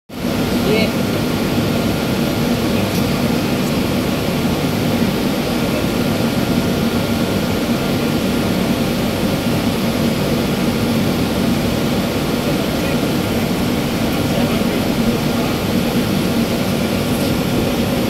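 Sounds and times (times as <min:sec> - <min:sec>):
drilling rig engine droning: 0:00.2 - 0:18.0.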